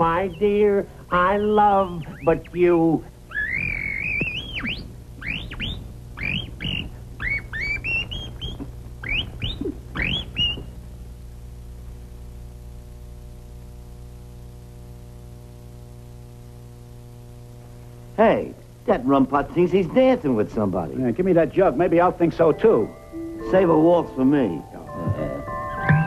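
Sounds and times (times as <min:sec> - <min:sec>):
steady low hum: 0:00.0 - 0:26.0
bird tweeting whistles: 0:03.3 - 0:10.7.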